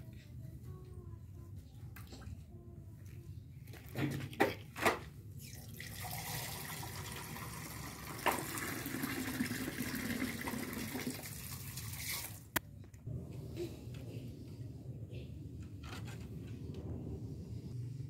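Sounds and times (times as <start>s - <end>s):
tap water running: 5.6s - 12.6s.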